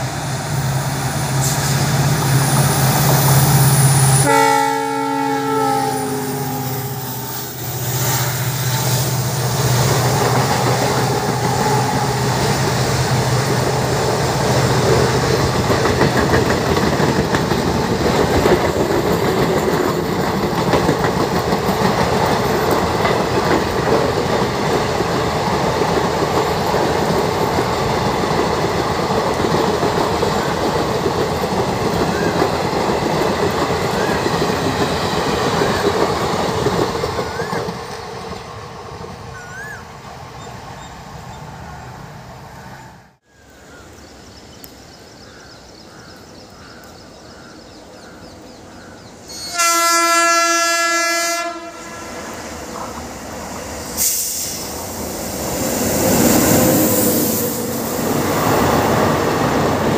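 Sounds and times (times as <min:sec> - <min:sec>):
locomotive engine hum: 0:00.0 - 0:43.1
train wheels clattering on rails: 0:08.6 - 0:39.1.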